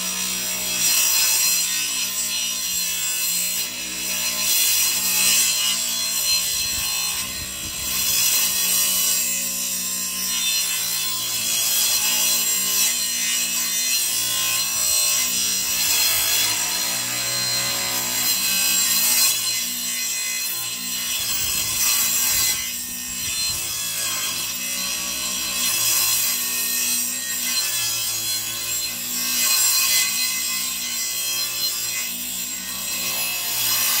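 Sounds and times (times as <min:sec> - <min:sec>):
table saw cutting rubber and wood: 0:00.0 - 0:34.0.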